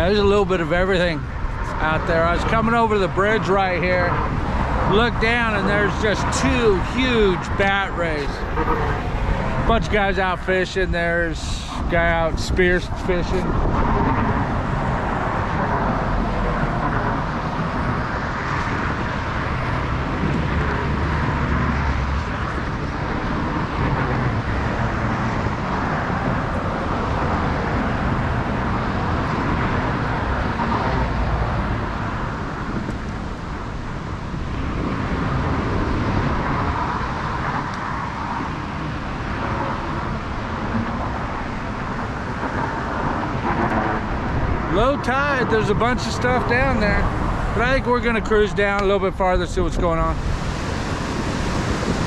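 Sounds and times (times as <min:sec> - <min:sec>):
road traffic: 0:00.0 - 0:52.0.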